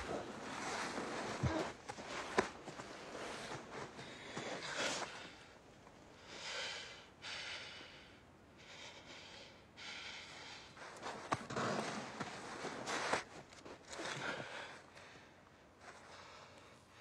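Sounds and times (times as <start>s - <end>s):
scuffling: 0.0s - 5.4s, 10.8s - 15.1s
man breathing heavily: 0.0s - 11.3s, 13.9s - 17.0s.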